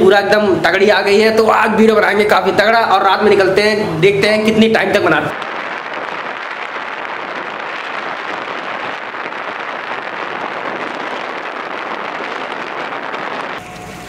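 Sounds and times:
rushing wind: 5.3 - 13.6
motorcycle road noise: 5.4 - 13.6.

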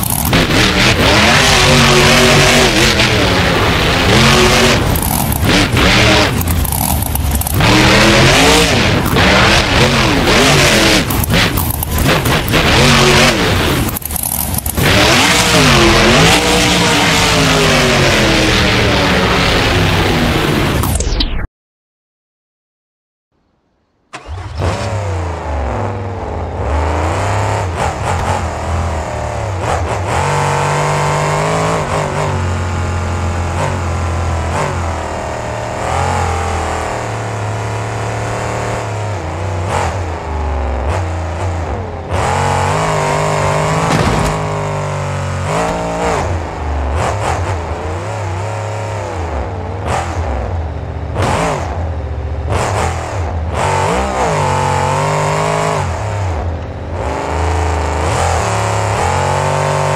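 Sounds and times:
truck engine revving: 0.0 - 20.9, 24.1 - 59.9
sharp bangs: 43.6 - 45.8.

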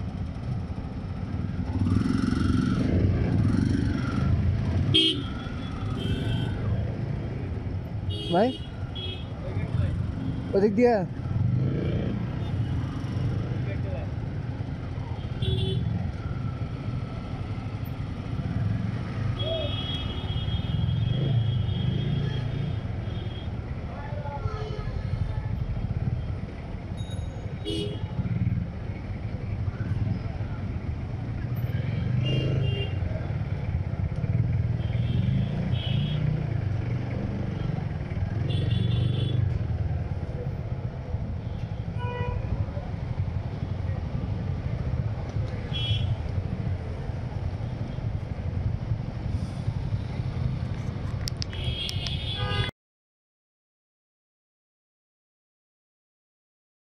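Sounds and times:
road noise: 0.0 - 52.7
motorcycle engine: 0.1 - 6.6.

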